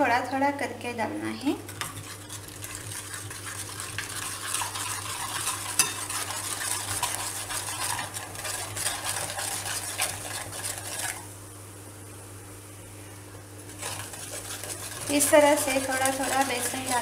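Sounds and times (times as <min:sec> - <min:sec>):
metal ladle scraping a pan: 0:04.5 - 0:11.2.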